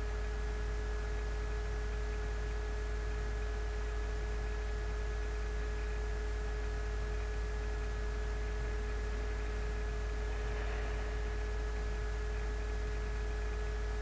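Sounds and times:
electrical hum: 0:00.0 - 0:14.0.

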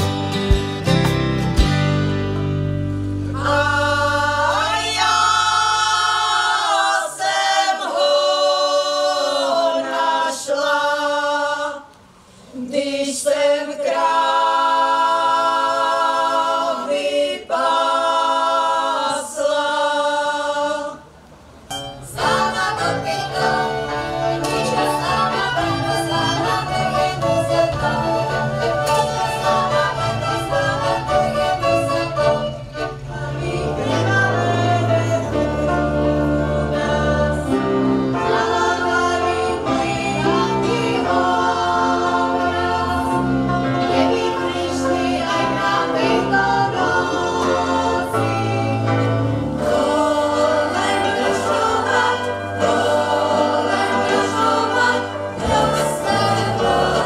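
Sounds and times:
folk dance music: 0:00.0 - 0:09.0, 0:21.5 - 0:57.0
women's choir singing: 0:03.2 - 0:57.0.

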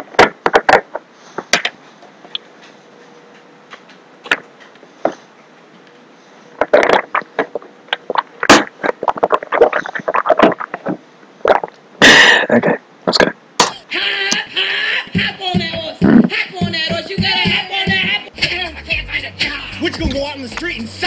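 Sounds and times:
plastic bottle crinkling: 0:06.6 - 0:11.8.

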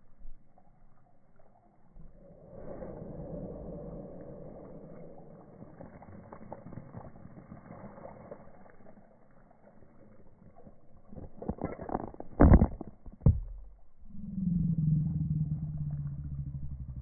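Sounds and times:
water spraying over grass: 0:02.2 - 0:11.5.

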